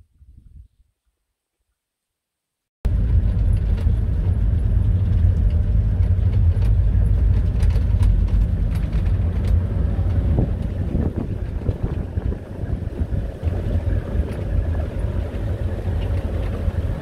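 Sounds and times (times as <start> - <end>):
vehicle engine and tyres rumbling: 2.9 - 17.0
cab rattles and knocks: 3.2 - 12.5.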